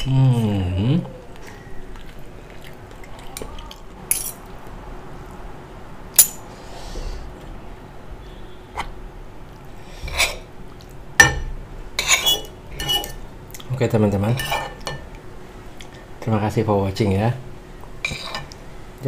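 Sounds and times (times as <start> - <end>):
cutlery clinking on ceramic bowls: 11.2 - 13.2.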